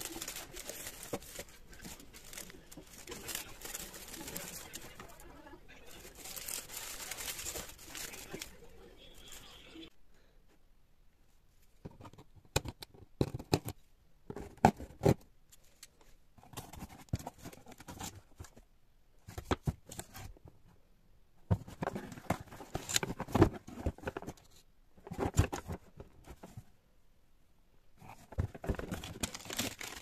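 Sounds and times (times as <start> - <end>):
cardboard scraping and rustling: 0.0 - 5.2, 21.5 - 26.7, 28.0 - 30.0.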